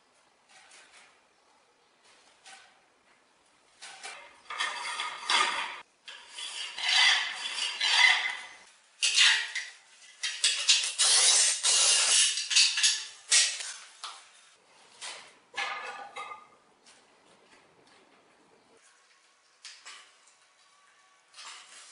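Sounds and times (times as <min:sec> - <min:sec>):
ceramic tile scraping on tile cutter: 0:03.8 - 0:09.5, 0:10.4 - 0:13.7.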